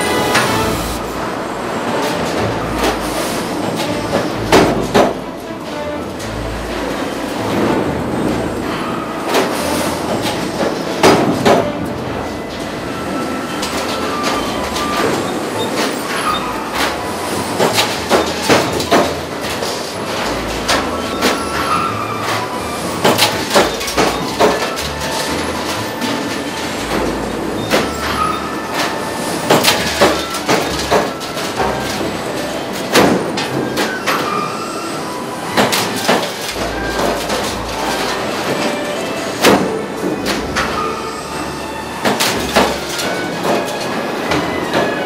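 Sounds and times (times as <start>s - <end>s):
sharp metallic clanks and bangs: 0.0s - 12.7s
industrial machine noise: 0.0s - 45.0s.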